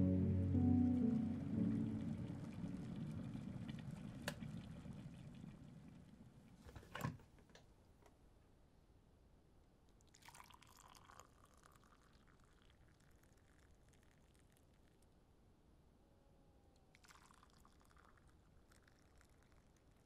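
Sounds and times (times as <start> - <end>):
kettle water boiling: 0.0 - 7.6, 10.1 - 14.6, 17.0 - 20.0
hot water poured into a mug: 10.0 - 14.9, 17.0 - 20.0.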